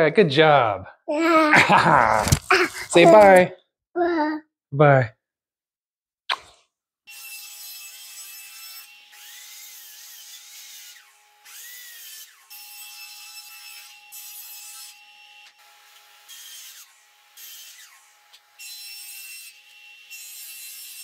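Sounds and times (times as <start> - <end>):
miter saw cutting wood: 7.1 - 21.0.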